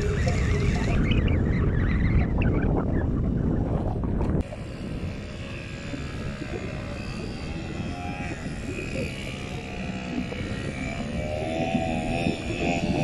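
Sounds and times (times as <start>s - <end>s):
quad bike engine running: 4.5s - 13.0s.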